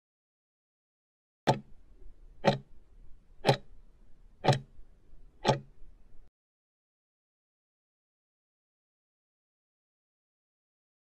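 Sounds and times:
timer ticking: 1.5s - 1.7s, 2.4s - 2.7s, 3.4s - 3.7s, 4.4s - 4.8s, 5.4s - 5.8s.

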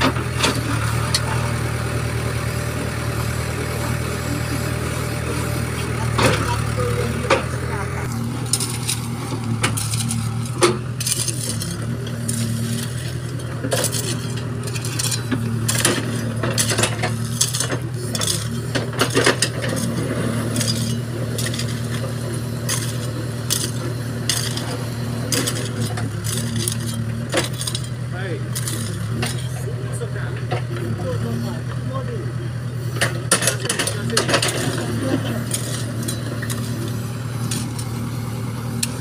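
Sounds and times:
diesel engine running: 0.0s - 39.0s
crushed stone clinking and scraping: 5.1s - 29.7s, 33.3s - 39.0s.

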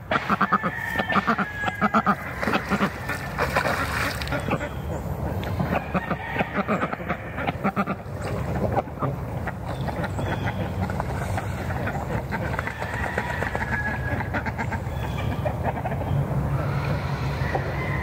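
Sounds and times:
ducks quacking: 0.0s - 17.7s.

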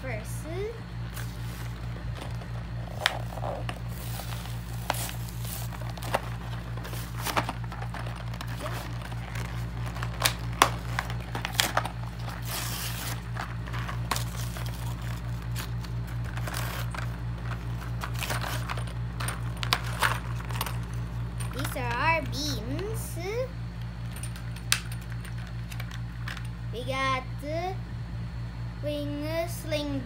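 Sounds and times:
low pulsing hum: 0.0s - 30.0s
cardboard tearing: 2.4s - 17.2s.

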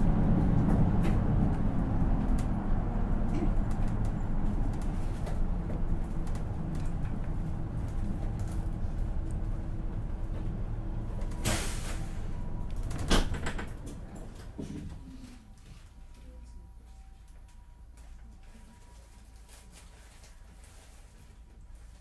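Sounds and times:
bus engine rumble: 0.0s - 22.0s
short burst of air: 11.4s - 12.2s.

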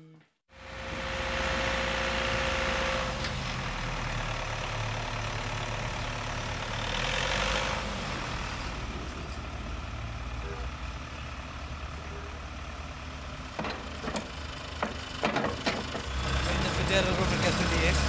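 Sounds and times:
diesel engine humming: 0.5s - 18.0s.

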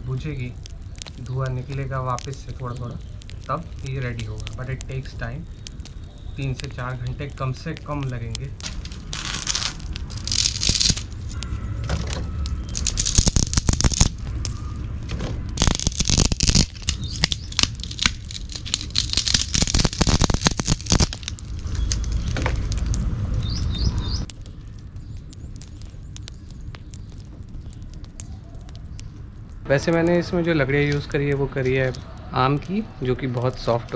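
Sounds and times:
low fire rumble: 0.0s - 33.9s
wood fire crackling and popping: 0.0s - 33.9s
sticks scraping into fire: 8.6s - 11.4s.

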